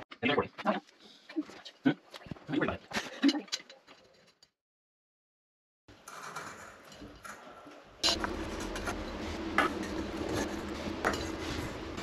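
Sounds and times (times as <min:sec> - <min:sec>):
steady low hum: 0:08.0 - 0:12.0.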